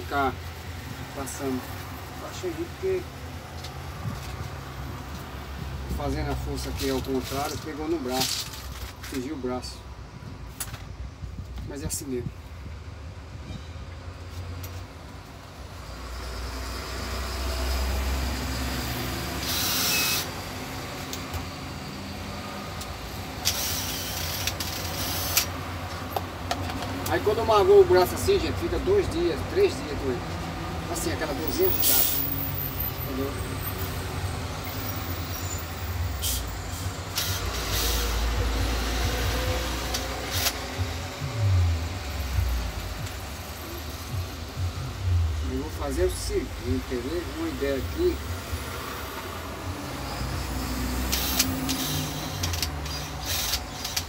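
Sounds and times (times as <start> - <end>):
cordless drill driving screw: 19.4 - 20.4, 23.4 - 25.6, 37.1 - 38.2, 39.8 - 40.6, 50.6 - 54.0
steady low rumble: 38.4 - 47.6
sharp handling clicks: 51.1 - 54.0.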